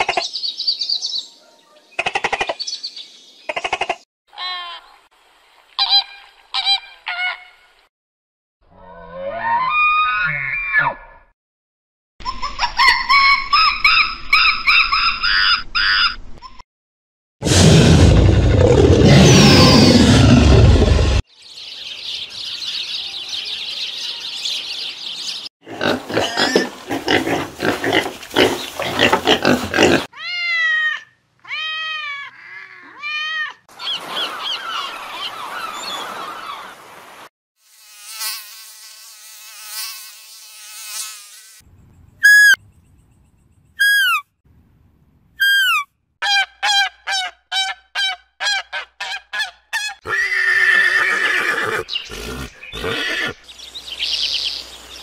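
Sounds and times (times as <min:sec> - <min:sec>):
animal buzzing: 0:37.6 - 0:41.6, 0:51.6 - 0:53.4
chirping calls: 0:41.7 - 0:44.2, 0:51.0 - 0:55.0
falling whistled calls: 0:42.2 - 0:42.6, 0:43.8 - 0:44.2
horse whinnying: 0:50.0 - 0:53.4.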